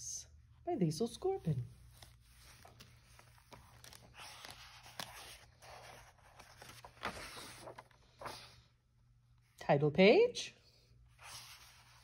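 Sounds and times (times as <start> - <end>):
book pages turning: 1.5 - 8.6, 11.2 - 12.0.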